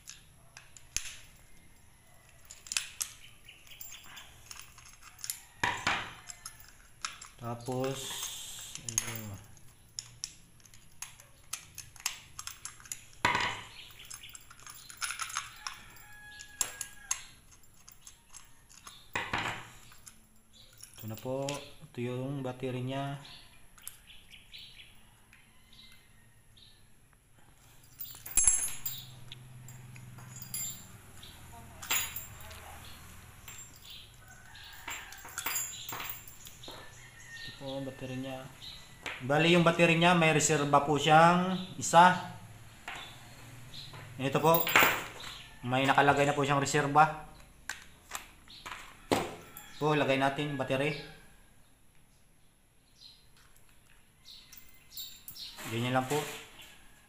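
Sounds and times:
padlock and keys clinking: 0:00.0 - 0:22.0, 0:23.3 - 0:26.0, 0:27.4 - 0:40.6, 0:42.7 - 0:50.0, 0:53.0 - 0:56.7
screwdriver clicking on padlock: 0:08.7 - 0:19.1.

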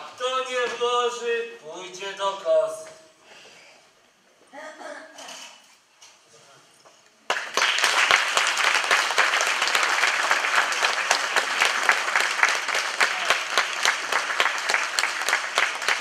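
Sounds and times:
audience applauding: 0:07.3 - 0:16.0.

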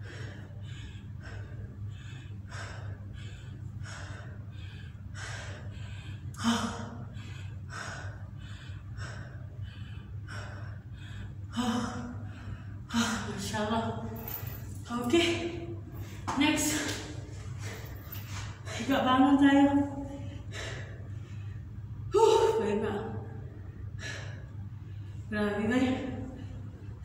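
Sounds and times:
woman panting hard: 0:00.0 - 0:22.4, 0:23.0 - 0:25.3.

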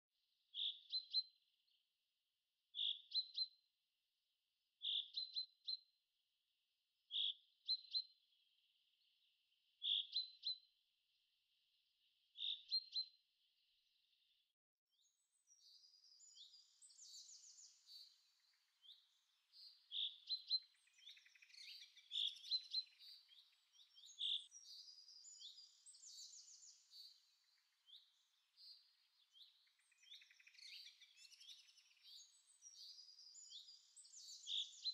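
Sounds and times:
birds chirping: 0:15.4 - 0:34.9.

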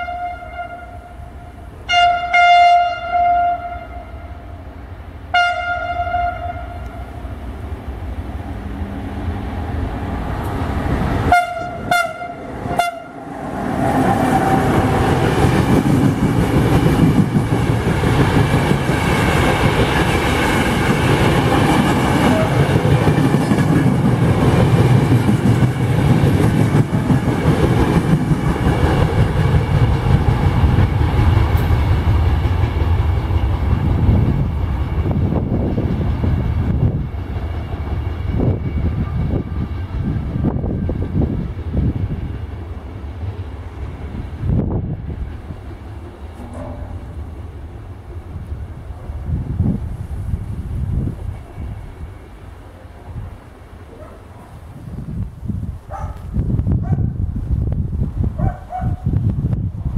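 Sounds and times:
train horn blasts: 0:00.0 - 0:04.6, 0:05.3 - 0:07.3, 0:11.2 - 0:13.4, 0:22.2 - 0:22.9
train rumbling past: 0:00.0 - 0:59.9.

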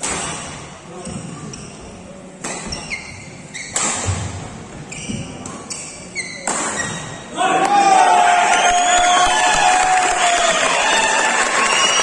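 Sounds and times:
shoe squeaks on court: 0:02.4 - 0:04.1, 0:04.9 - 0:07.3.

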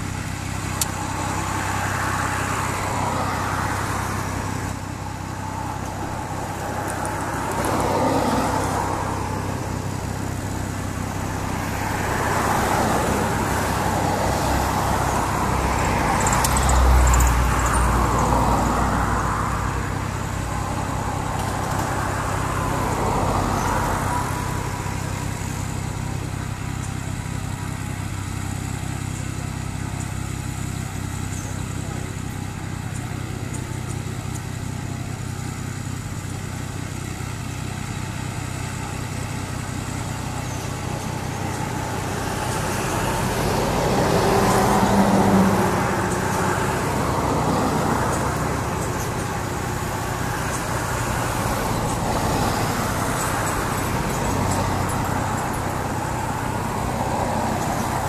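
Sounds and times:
propeller plane engine idling: 0:00.0 - 0:58.0.

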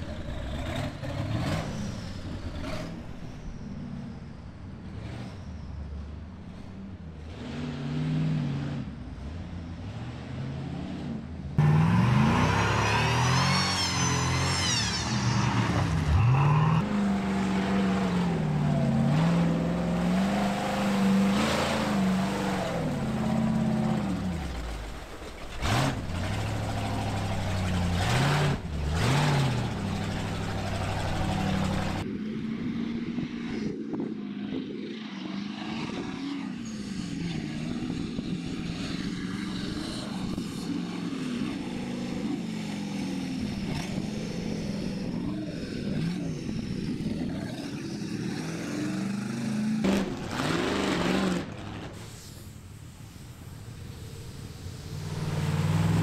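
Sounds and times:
race vehicle engines revving: 0:00.0 - 0:56.0
muffled engine revving: 0:06.6 - 0:32.1.

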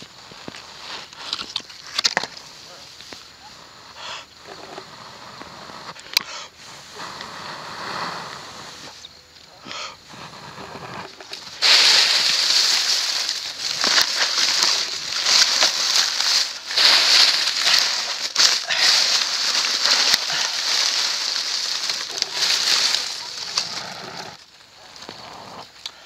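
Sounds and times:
loud rushing hiss: 0:05.0 - 0:09.0, 0:10.0 - 0:24.4
man blowing puffs: 0:05.2 - 0:09.0.

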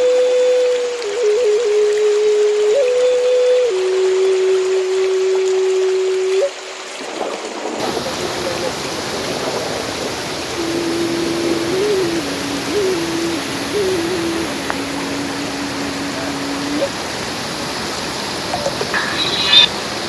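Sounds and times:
rushing running water: 0:00.0 - 0:20.0
soft low tone melody: 0:10.6 - 0:17.0.

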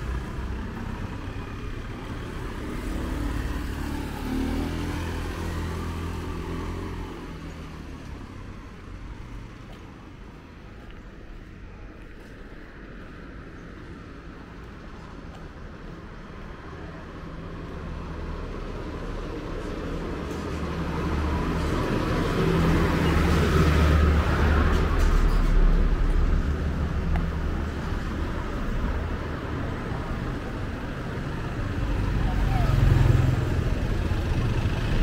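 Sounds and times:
vehicle passing by: 0:00.0 - 0:09.6, 0:17.9 - 0:35.0
road traffic: 0:00.0 - 0:35.0.

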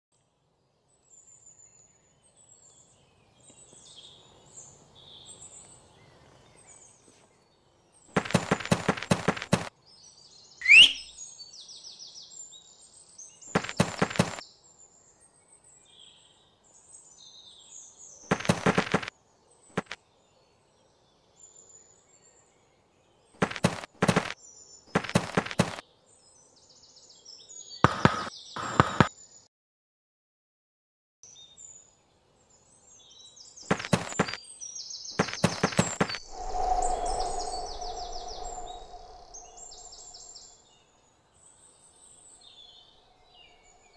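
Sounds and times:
faint birds chirping: 0:00.2 - 0:29.5, 0:31.2 - 0:43.9
quick cartoon footsteps: 0:08.1 - 0:09.7, 0:13.5 - 0:14.4, 0:18.3 - 0:19.1, 0:19.7 - 0:20.0, 0:23.4 - 0:25.8, 0:27.9 - 0:29.1, 0:33.7 - 0:34.4, 0:35.2 - 0:36.3
sharp rising whistle: 0:10.6 - 0:11.1, 0:36.0 - 0:40.4.

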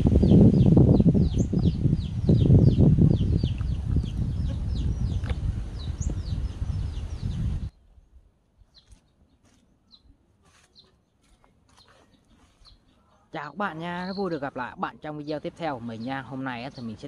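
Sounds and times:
low rumbling noise: 0:00.0 - 0:08.3
bird chirping: 0:00.0 - 0:17.0.

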